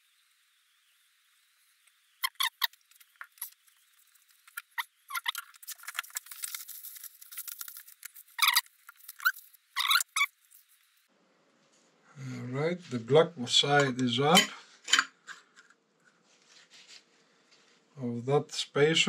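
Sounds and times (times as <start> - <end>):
paper towel rustling: 16.2 - 17.9.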